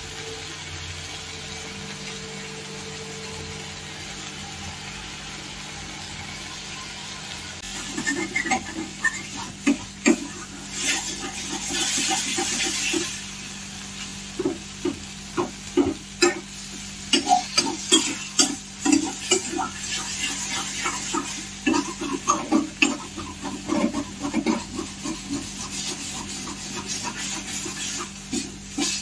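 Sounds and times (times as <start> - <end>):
onions sizzling: 0.0 - 29.0
spatula scraping metal pan: 7.6 - 13.2, 14.4 - 29.0.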